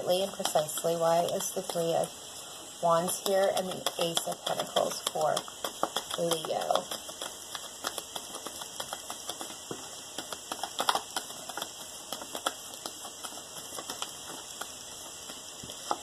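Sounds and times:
cards being shuffled: 0:03.6 - 0:16.0.

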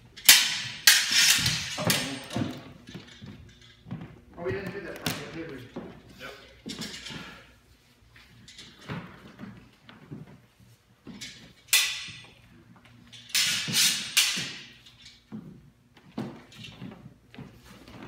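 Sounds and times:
steel swords clashing: 0:00.2 - 0:02.5, 0:11.7 - 0:12.3, 0:13.2 - 0:14.8
footsteps on wooden floor: 0:02.2 - 0:06.1, 0:15.3 - 0:18.0.

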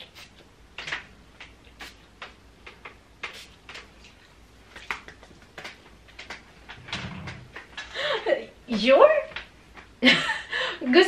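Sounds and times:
spray bottle hissing puffs: 0:03.2 - 0:03.6.

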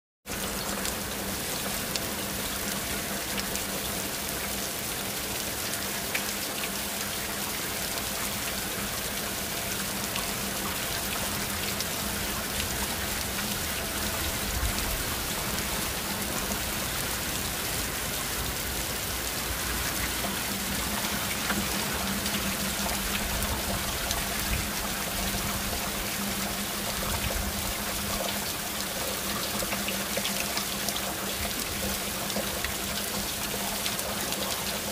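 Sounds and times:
heavy rain hissing: 0:08.3 - 0:29.5.

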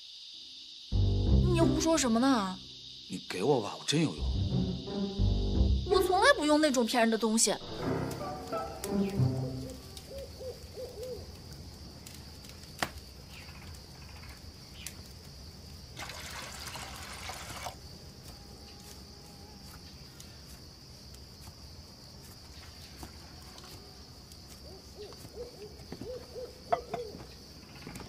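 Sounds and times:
high-pitched insect drone: 0:00.0 - 0:10.5
owl hooting: 0:09.8 - 0:11.3, 0:24.6 - 0:27.2
water trickling into steel cup: 0:16.0 - 0:17.8.

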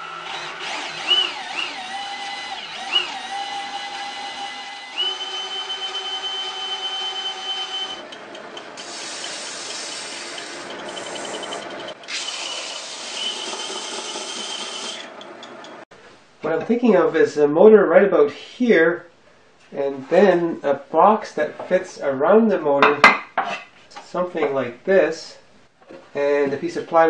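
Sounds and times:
drill whining driving belt sander: 0:00.0 - 0:08.0, 0:08.8 - 0:15.2
wood block sanding on belt: 0:08.8 - 0:11.6.

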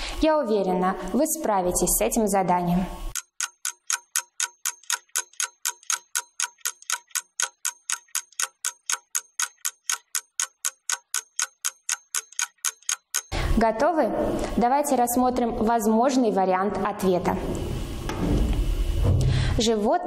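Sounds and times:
clock ticking: 0:03.1 - 0:13.4.

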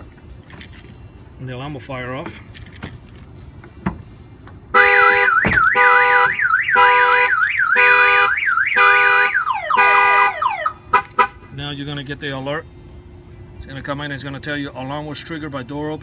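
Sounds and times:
car alarm siren: 0:04.8 - 0:10.8.

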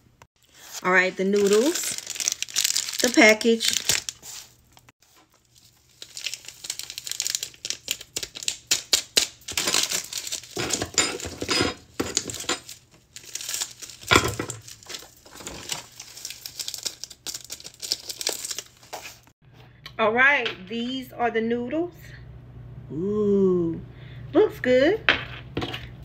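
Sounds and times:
packaging crinkling and tearing: 0:00.4 - 0:19.3.

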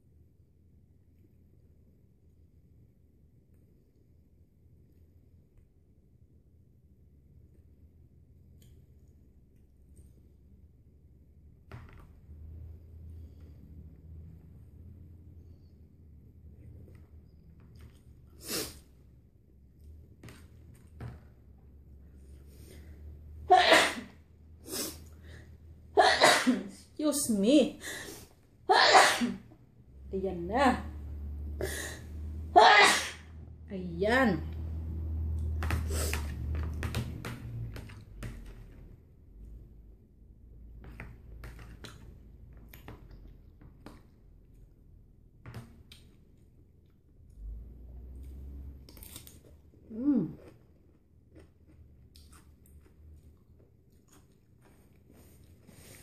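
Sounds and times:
person sneezing: 0:23.5 - 0:24.1, 0:26.0 - 0:26.8, 0:28.7 - 0:29.5, 0:32.6 - 0:33.3.

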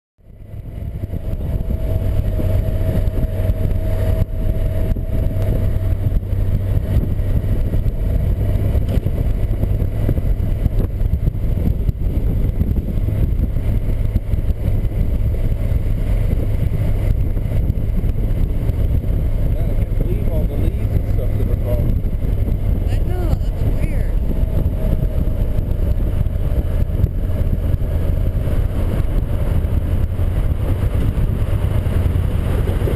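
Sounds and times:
motorcycle engine rumbling: 0:00.2 - 0:32.9.

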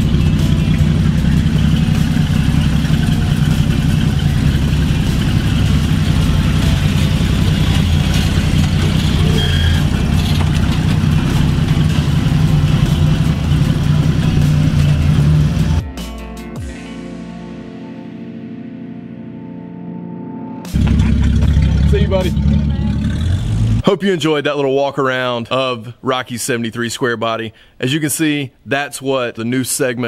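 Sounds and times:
pickup truck engine running: 0:00.0 - 0:15.8, 0:20.7 - 0:23.8.

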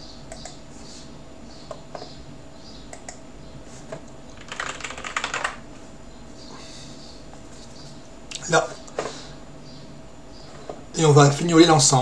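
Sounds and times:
keyboard typing: 0:04.4 - 0:05.6.

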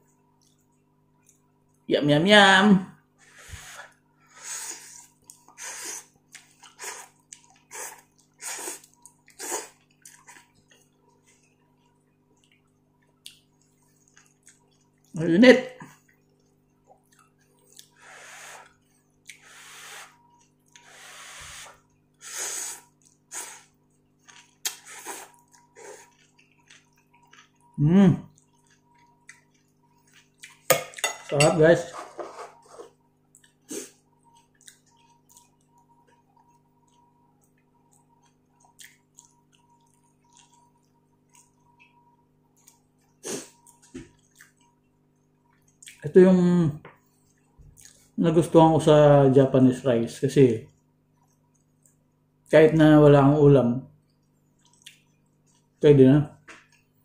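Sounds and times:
lip smacking and chewing: 0:00.1 - 0:01.8, 0:05.2 - 0:15.1, 0:16.0 - 0:18.0, 0:22.8 - 0:30.7, 0:33.3 - 0:46.0, 0:47.1 - 0:48.2, 0:51.1 - 0:52.2, 0:54.1 - 0:55.8
person blowing on noodles: 0:03.2 - 0:05.0, 0:05.6 - 0:06.1, 0:07.7 - 0:08.8, 0:18.0 - 0:18.7, 0:19.4 - 0:20.2, 0:20.8 - 0:23.7
person slurping noodles: 0:03.2 - 0:06.1, 0:06.7 - 0:09.8, 0:18.0 - 0:18.7, 0:20.8 - 0:23.8, 0:24.6 - 0:26.1.

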